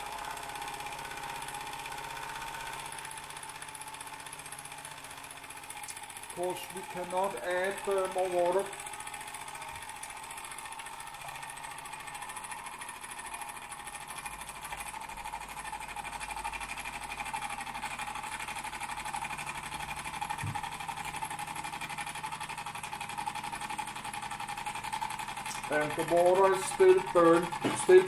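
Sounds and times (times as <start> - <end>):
toy steam engine chuffing: 0.0 - 28.0.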